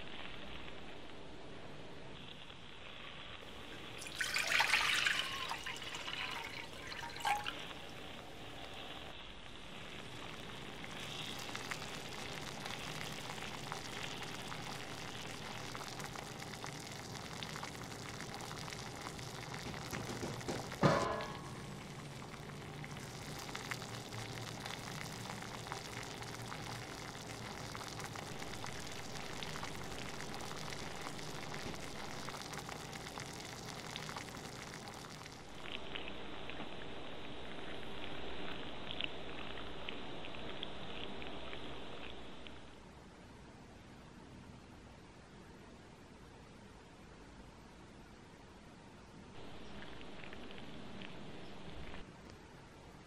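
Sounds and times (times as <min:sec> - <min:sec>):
liquid hissing in hot pot: 0:03.4 - 0:35.7
sharp knock: 0:20.0 - 0:21.6.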